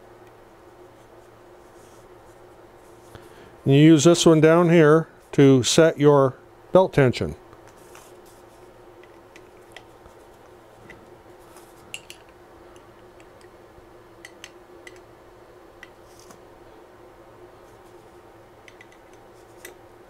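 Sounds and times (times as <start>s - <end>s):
faint steady hum: 0.0s - 20.0s
metal tool clicks and taps: 14.2s - 15.0s.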